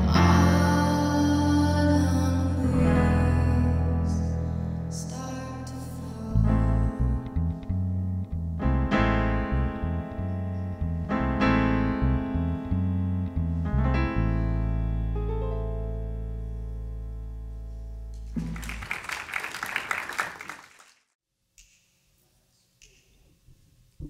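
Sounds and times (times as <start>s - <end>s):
piano chords: 0.0s - 19.4s
audience applause: 18.4s - 21.1s.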